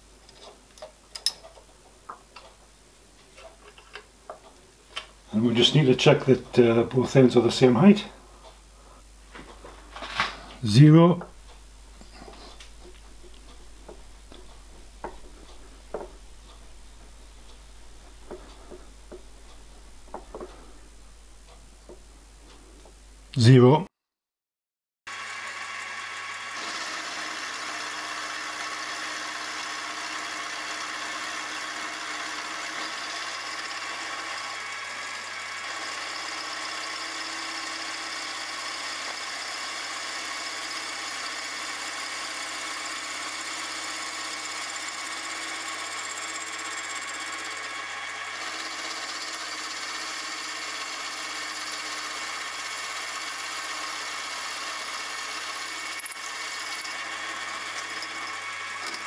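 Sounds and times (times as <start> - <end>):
milling machine whine: 12.4 - 20.5, 25.1 - 59.0
end mill cutting metal: 25.1 - 59.0.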